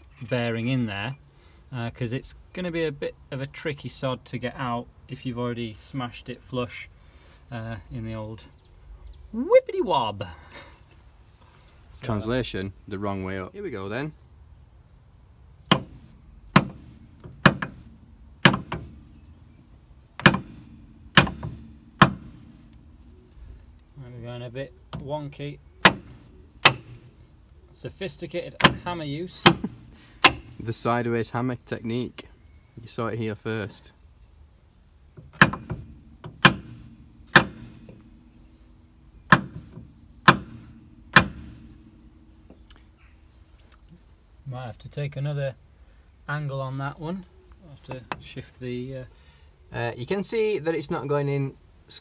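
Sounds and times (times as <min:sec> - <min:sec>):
hammer striking wooden block: 0:15.7 - 0:17.8, 0:18.4 - 0:19.0, 0:20.2 - 0:22.5, 0:25.8 - 0:27.0, 0:28.6 - 0:30.6, 0:35.3 - 0:38.0, 0:39.2 - 0:41.7.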